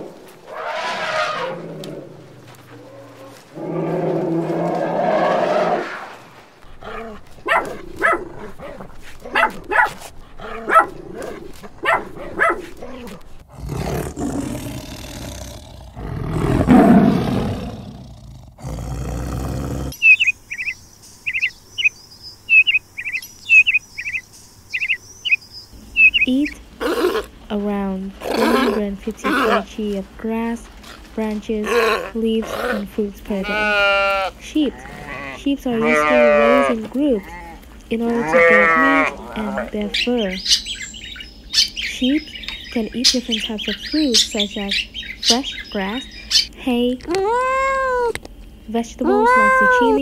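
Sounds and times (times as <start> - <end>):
low growl-like animal call: 0.0 - 8.6, 12.9 - 20.0
high bird chirps: 20.0 - 26.6, 40.0 - 46.5.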